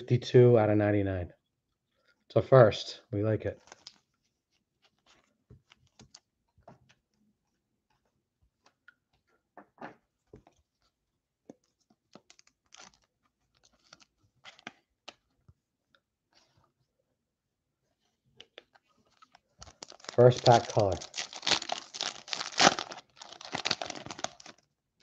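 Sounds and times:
card crinkling in plastic sleeve: 3.6s - 4.2s, 12.1s - 15.2s, 19.0s - 24.7s.

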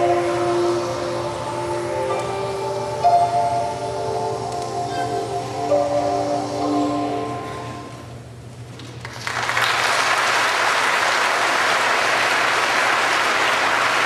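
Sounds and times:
audience applause: 9.0s - 14.0s.

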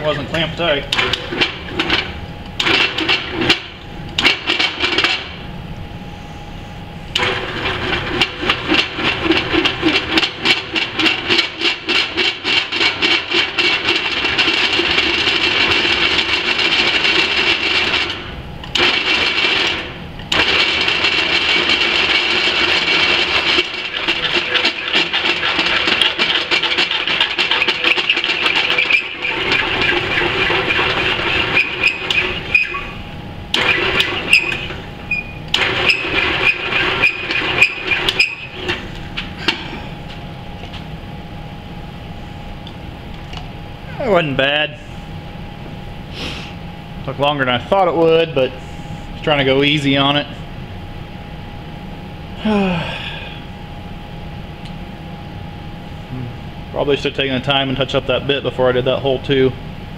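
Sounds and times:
drill press chattering through steel: 0.1s - 5.4s, 7.1s - 39.8s.

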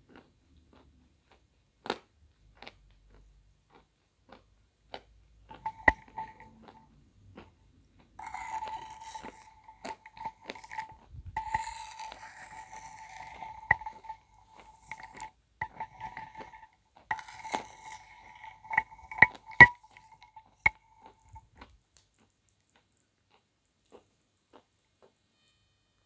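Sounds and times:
soup slurping: 5.6s - 6.8s, 8.2s - 21.4s
spoon clinking on ceramic bowl: 5.6s - 6.8s, 8.2s - 21.4s.

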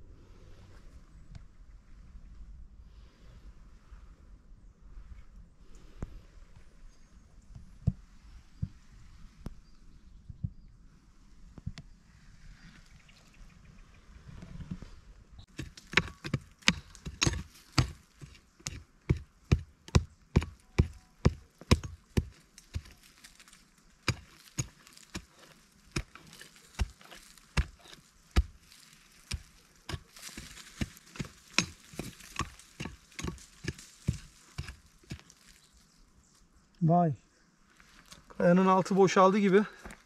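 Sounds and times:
pick digging into soil: 15.4s - 35.8s.

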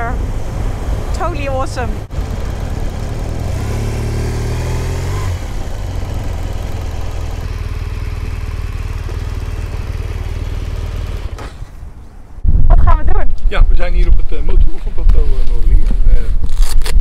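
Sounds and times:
motorcycle engine revving: 0.0s - 11.8s
wind noise: 11.8s - 17.0s.

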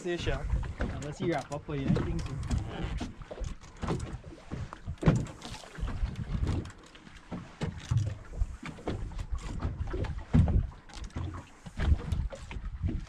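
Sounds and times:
water sloshing against boat hull: 0.0s - 13.0s
knocks and thumps: 8.8s - 13.0s.

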